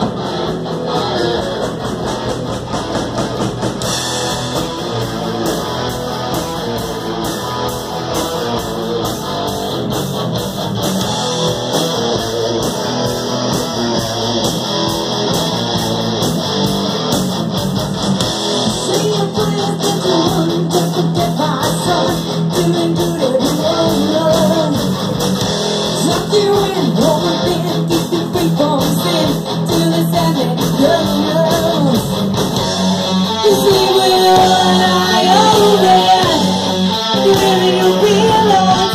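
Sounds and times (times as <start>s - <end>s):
drums with steady beat: 0.0s - 38.9s
electric guitars: 0.0s - 38.9s
woman singing lead vocal: 18.8s - 24.9s, 26.0s - 32.1s, 33.4s - 38.9s.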